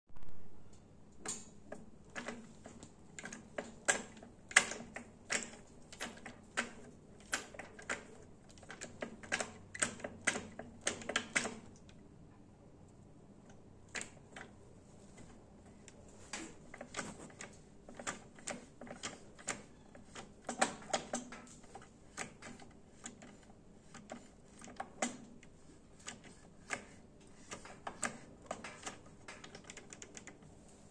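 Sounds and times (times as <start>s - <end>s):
metal linkage clicking and tapping: 1.2s - 12.0s, 15.2s - 30.5s.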